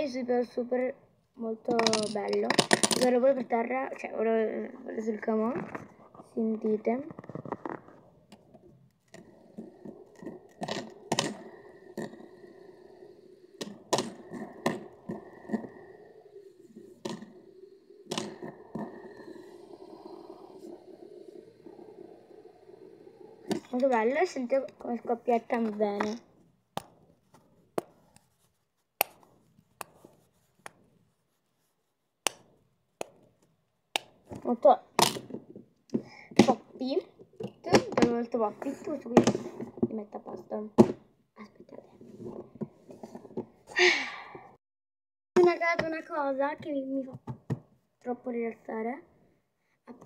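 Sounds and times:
fidget toy bubbles popping: 9.2 - 26.2.

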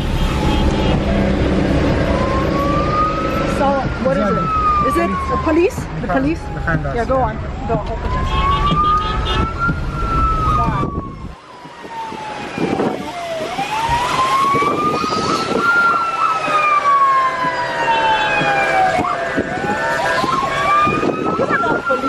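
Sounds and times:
road noise on wet highway: 0.0 - 22.0
steady siren tone: 0.0 - 22.0
wailing siren: 0.0 - 22.0.

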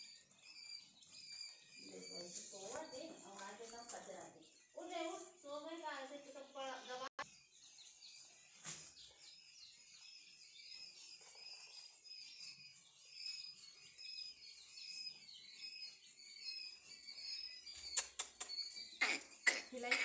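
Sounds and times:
chicks peeping: 0.0 - 20.0
sharp clicks: 17.9 - 18.8.

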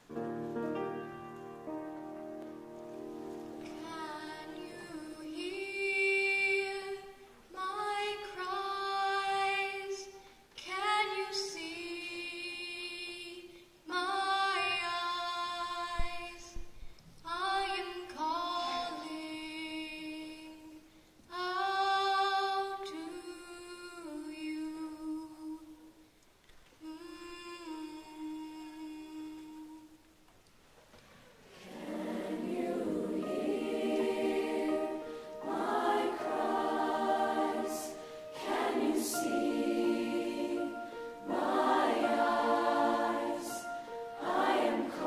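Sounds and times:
girl singing unaccompanied: 3.7 - 16.6, 17.2 - 25.8, 26.8 - 30.0.

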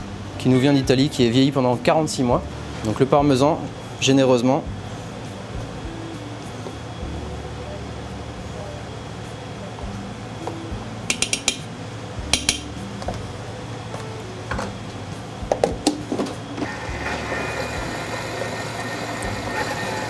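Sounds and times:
kitchen appliance motor running: 16.6 - 20.0.

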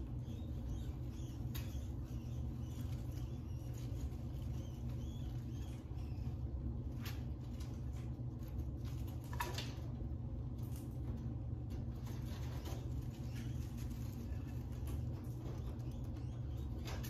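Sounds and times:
rats rustling in bedding: 0.0 - 17.0
steady low hum: 0.0 - 17.0.

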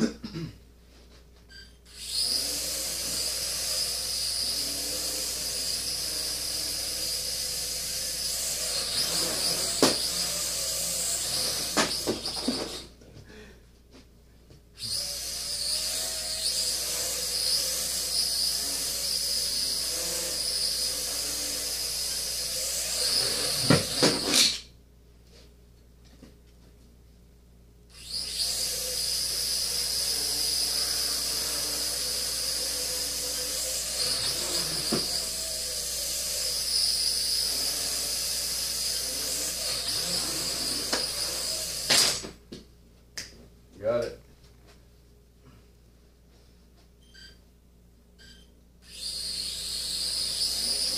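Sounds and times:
quadcopter buzzing: 1.9 - 12.9, 14.8 - 24.6, 27.9 - 42.3, 48.8 - 50.9.

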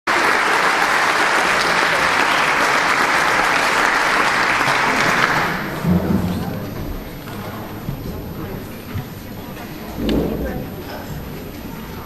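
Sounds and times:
audience applauding: 0.1 - 6.0.

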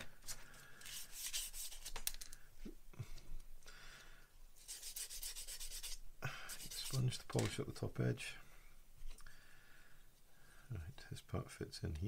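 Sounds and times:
sanding sponge scraping plastic: 0.9 - 1.9, 4.6 - 7.2.

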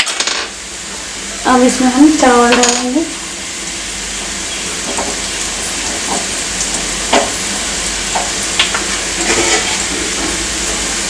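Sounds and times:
food sizzling in a pan: 0.0 - 11.0
spatula scraping a pan: 9.2 - 10.4.

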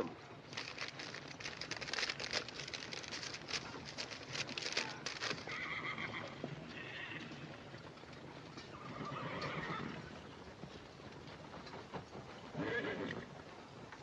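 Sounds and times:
hooves clopping on hard ground: 0.3 - 14.0
horse whinnying: 5.4 - 7.4, 8.7 - 10.1, 12.6 - 13.3.

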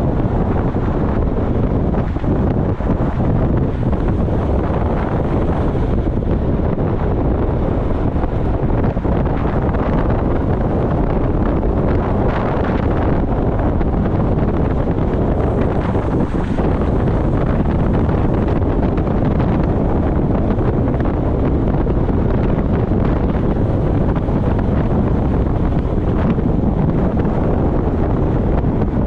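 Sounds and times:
wind buffeting microphone: 0.0 - 29.0.

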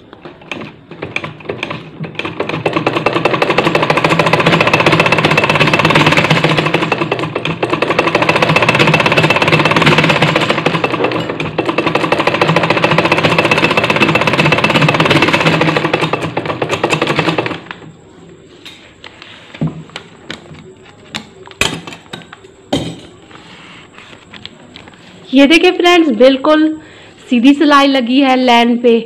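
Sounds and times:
sewing machine stitching: 0.0 - 17.9.

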